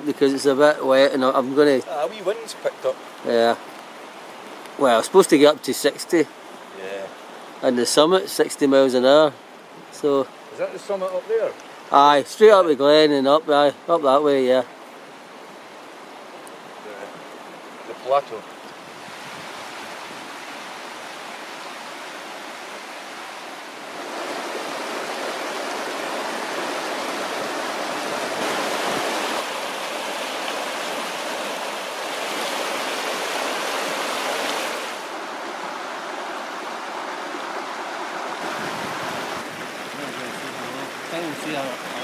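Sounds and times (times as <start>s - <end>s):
river rushing over boulders: 0.0s - 42.0s.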